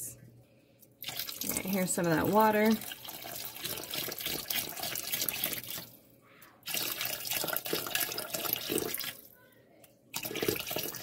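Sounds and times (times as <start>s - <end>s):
water pouring into soup pot: 1.0s - 6.0s, 6.6s - 9.4s, 10.1s - 11.0s.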